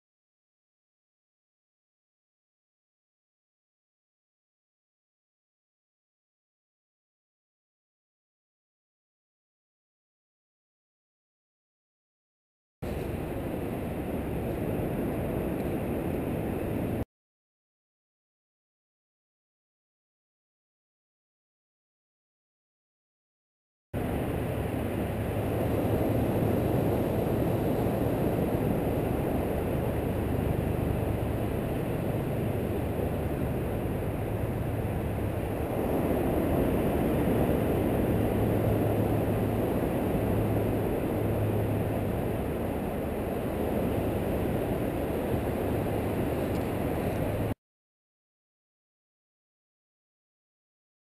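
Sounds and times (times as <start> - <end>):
ocean surf: 12.8 - 17.0, 24.0 - 47.6
wind: 12.8 - 17.1, 24.0 - 47.6
low rumble: 24.0 - 47.6.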